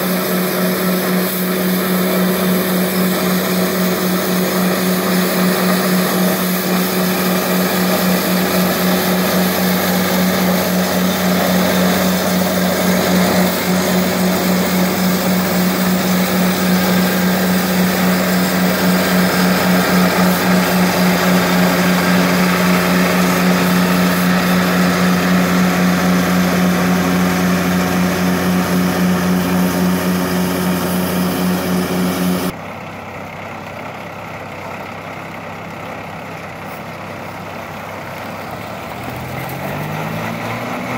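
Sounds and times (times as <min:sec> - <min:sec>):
rotary broom sweeping concrete: 0:00.0 - 0:32.6
diesel engine running: 0:00.0 - 0:40.9.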